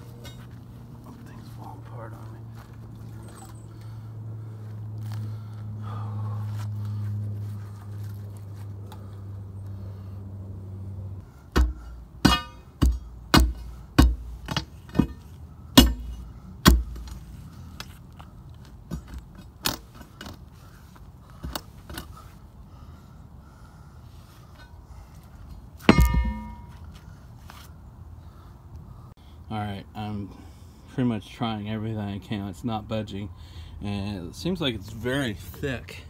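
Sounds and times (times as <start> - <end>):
steady low hum: 0.0 - 31.0
pry bar clanking on concrete lid: 11.6 - 15.2, 25.9 - 26.7.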